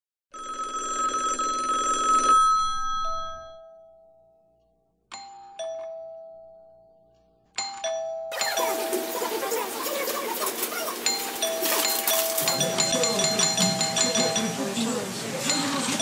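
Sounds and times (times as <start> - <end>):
ding-dong chime: 2.8 - 9.6, 11.0 - 16.0
busy food stall background noise: 8.3 - 16.0.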